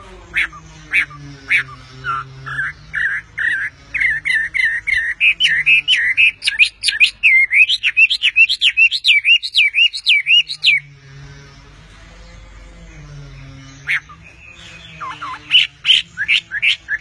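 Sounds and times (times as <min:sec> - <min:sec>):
bird singing slurred whistles: 0:02.6 - 0:10.9.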